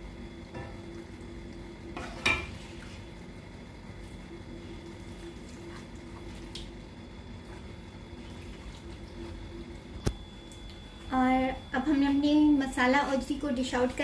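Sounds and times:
steady low hum: 0.0s - 14.0s
soft stirring in thick curry: 3.9s - 9.6s.

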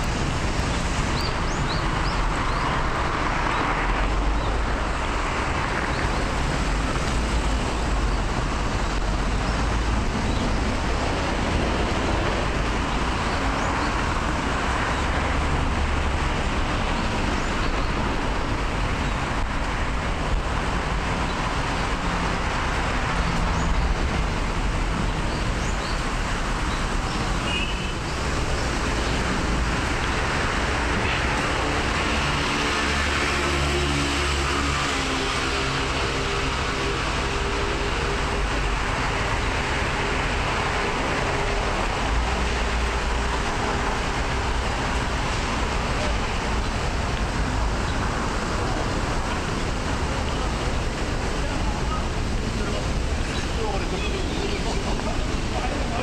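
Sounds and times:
cars driving past: 0.0s - 56.0s.

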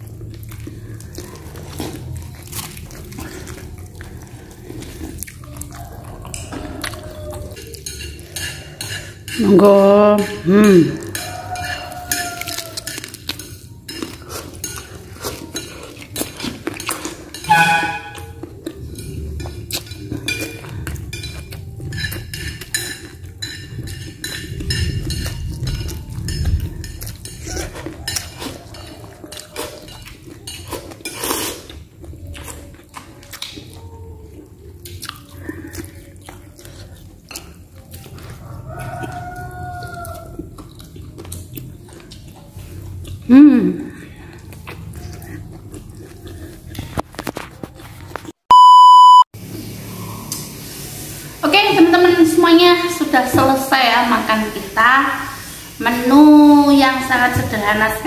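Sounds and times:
dishes and cutlery clinking: 0.0s - 42.8s.

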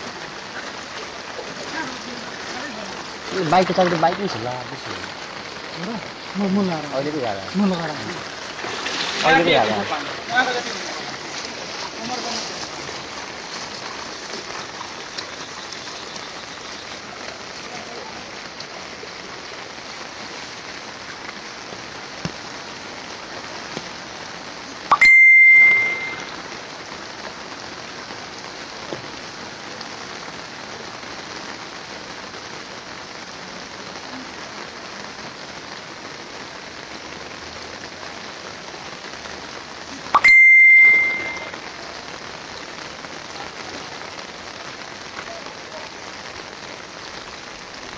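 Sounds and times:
rain hissing: 0.0s - 47.9s
high bell-like ding: 24.9s - 26.3s, 40.2s - 41.6s.

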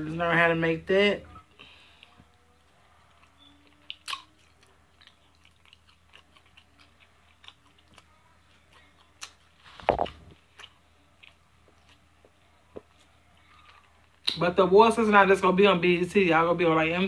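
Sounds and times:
person chewing and biting chicken: 3.0s - 12.2s, 12.8s - 14.4s
wet clicks and smacks: 14.1s - 14.5s.

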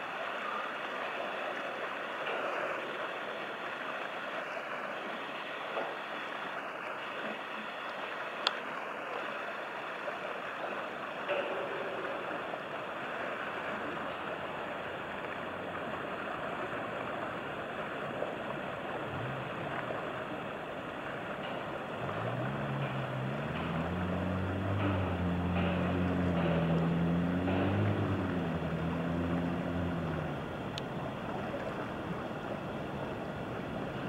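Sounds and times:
river water: 0.0s - 34.0s
wind: 0.0s - 34.0s
engine drone rising in pitch: 18.9s - 32.4s.

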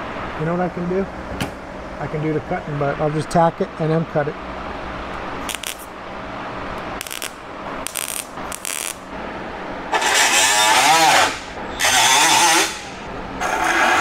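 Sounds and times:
welding arc crackling: 5.4s - 6.0s, 7.0s - 9.1s, 9.9s - 14.0s.

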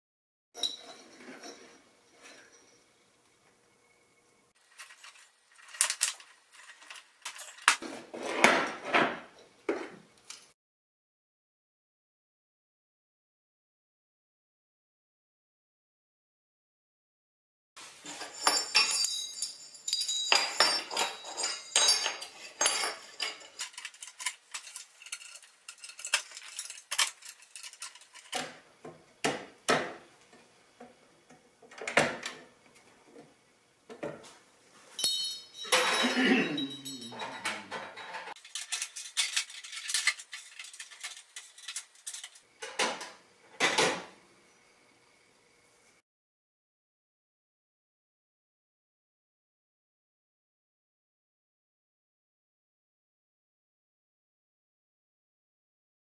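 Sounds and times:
metal tubes clinking and rattling: 0.6s - 2.8s, 4.6s - 7.8s, 17.8s - 28.5s, 34.9s - 42.8s.

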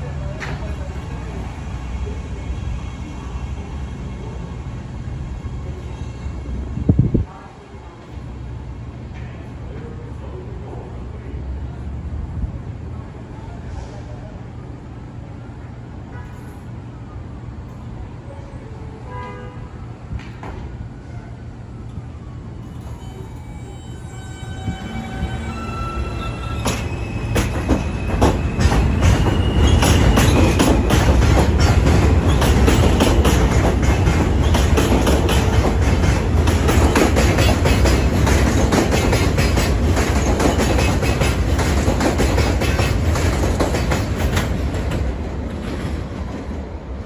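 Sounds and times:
train wheels clattering over rails: 24.8s - 46.8s.

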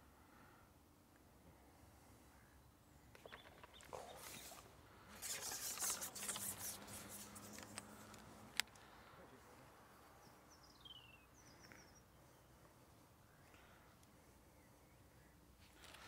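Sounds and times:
fishing tackle rustling: 3.5s - 8.6s
faint bird call: 10.2s - 12.6s.

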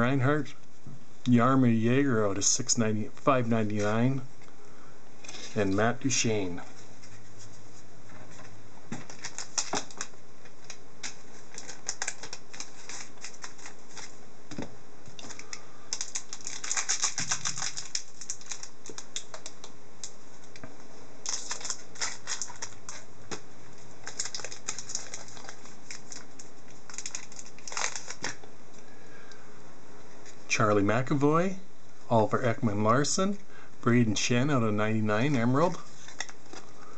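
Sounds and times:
wrapper rustling: 8.3s - 14.2s, 15.1s - 19.6s, 21.2s - 28.4s, 35.4s - 36.8s.

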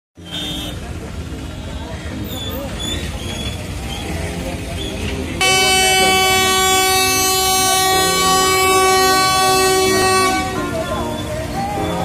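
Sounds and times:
crowd voices: 0.2s - 12.0s
train air horn blast: 5.4s - 11.0s.

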